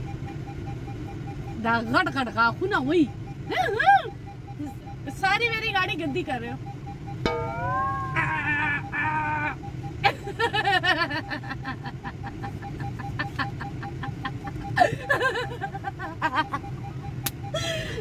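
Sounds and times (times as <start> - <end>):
faint repeating beep: 0.0 - 10.0
car engine idling: 0.0 - 18.0
woman giggling and laughing: 3.5 - 4.1, 10.0 - 18.0.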